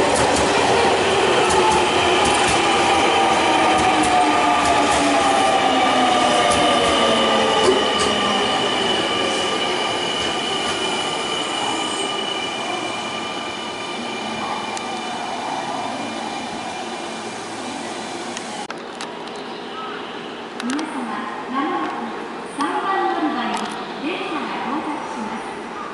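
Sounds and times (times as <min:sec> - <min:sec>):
train wheels squealing: 0:03.8 - 0:17.9.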